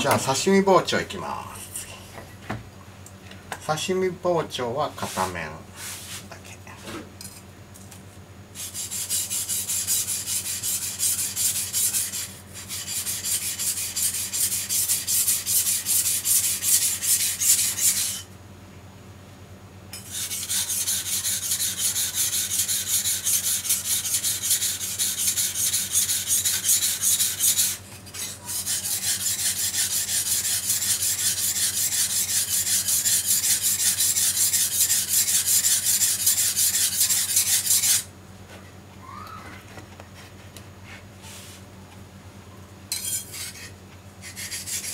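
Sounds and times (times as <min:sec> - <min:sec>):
knife scraping on whetstone: 0:08.6 - 0:18.3, 0:19.9 - 0:38.1, 0:42.9 - 0:44.9.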